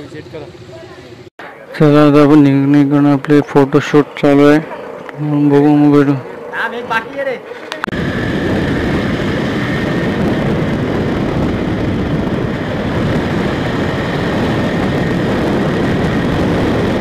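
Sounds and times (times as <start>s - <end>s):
motorcycle engine: 0.0s - 1.6s
wind buffeting microphone: 3.7s - 17.0s.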